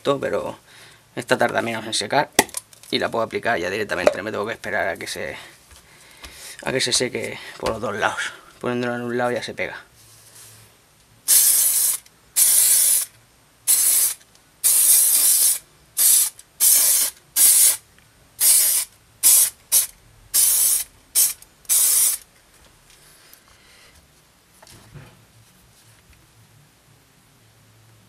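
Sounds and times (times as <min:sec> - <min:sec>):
aerosol spray can hissing: 0:11.3 - 0:13.1, 0:13.7 - 0:17.8, 0:18.4 - 0:22.2.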